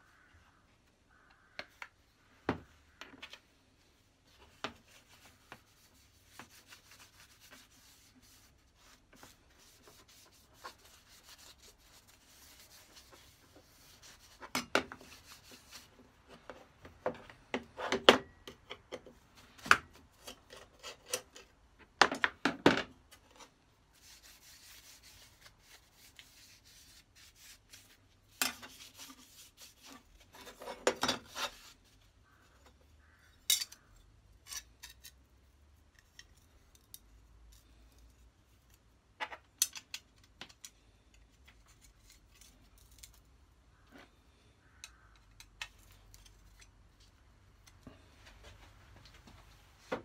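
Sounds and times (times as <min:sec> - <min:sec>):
soft rubbing: 0:02.0 - 0:16.8, 0:23.4 - 0:33.2
metal clicks and scrapes: 0:20.2 - 0:21.6.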